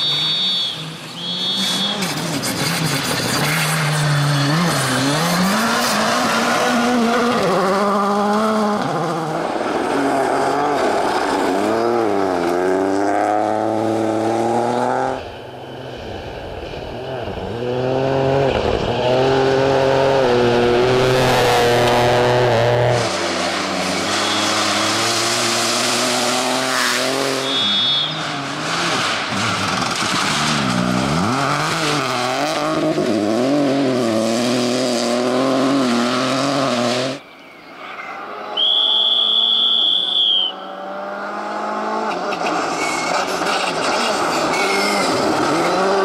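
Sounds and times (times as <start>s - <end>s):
long high whistle blast: 0.0s - 2.1s, 27.3s - 28.2s, 38.6s - 40.7s
rally car engines revving: 0.0s - 37.3s, 37.9s - 46.0s.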